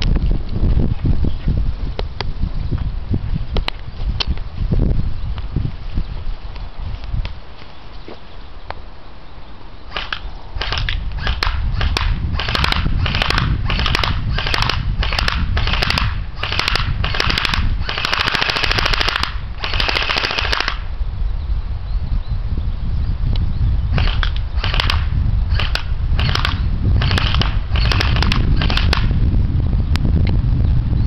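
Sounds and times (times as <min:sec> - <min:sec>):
airsoft gun firing: 0:09.9 - 0:20.9, 0:24.0 - 0:29.2.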